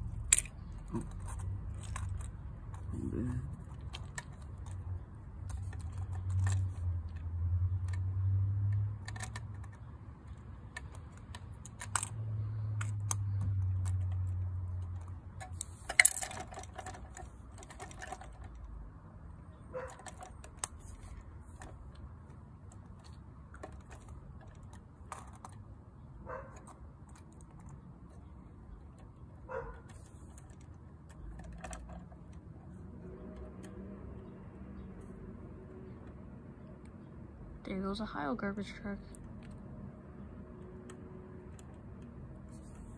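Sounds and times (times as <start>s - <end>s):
toy truck clicks and taps: 0.0s - 2.9s, 3.6s - 18.7s.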